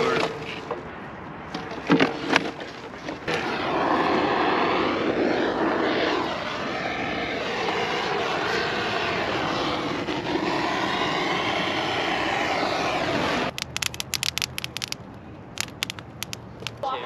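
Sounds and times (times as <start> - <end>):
aircraft engine drone: 3.3 - 16.8
sharp crackles: 13.5 - 16.8.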